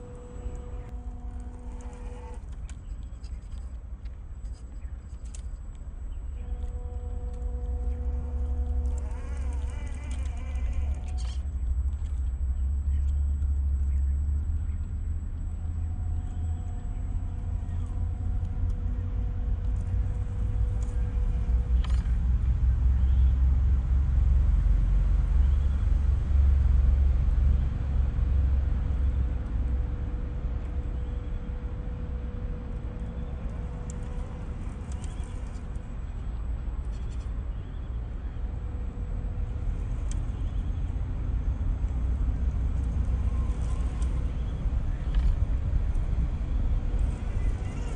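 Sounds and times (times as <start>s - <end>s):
small electric motor whine: 0.0s - 3.7s, 6.1s - 23.5s, 42.1s - 47.9s
steady low rumble: 0.0s - 47.9s.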